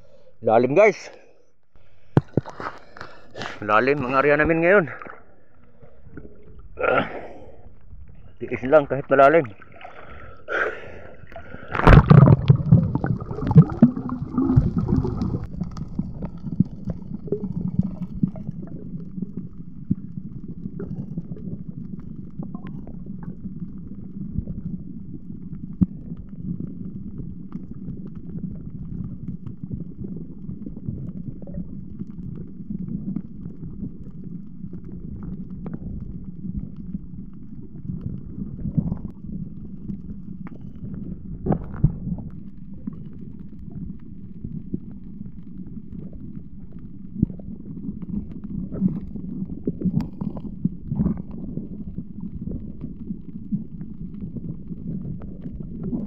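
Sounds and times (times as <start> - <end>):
muffled underwater rumble: 1.2 - 56.0
splashing and bubbling water: 1.8 - 56.0
faint clicks: 49.8 - 51.4.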